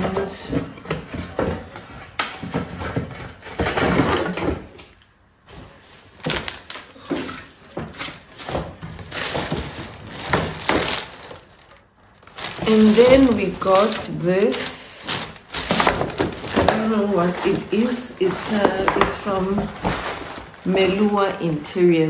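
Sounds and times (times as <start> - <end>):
cardboard box rustling and scraping: 12.2 - 21.3.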